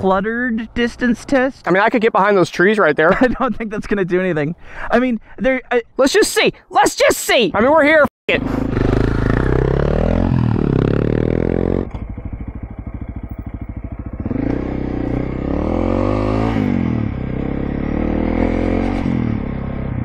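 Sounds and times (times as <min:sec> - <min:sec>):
motorcycle engine revving: 0:08.3 - 0:20.0.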